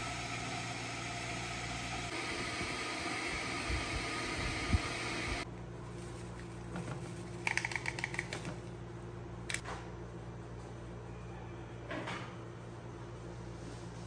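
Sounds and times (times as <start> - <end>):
water heater hissing: 0.0 - 5.5.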